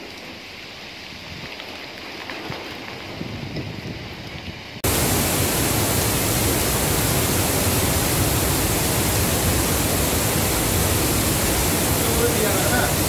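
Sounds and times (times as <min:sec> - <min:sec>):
waterfall rushing: 0:04.8 - 0:13.0.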